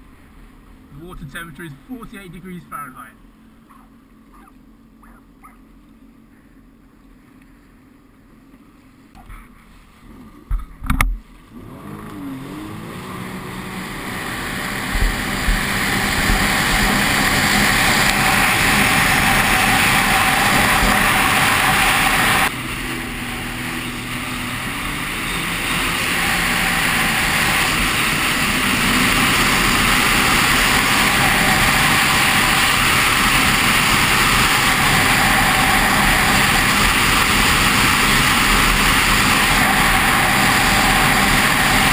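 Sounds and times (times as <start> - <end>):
jet ski engine accelerating: 10.0 - 41.9
wind and water rushing: 11.5 - 41.9.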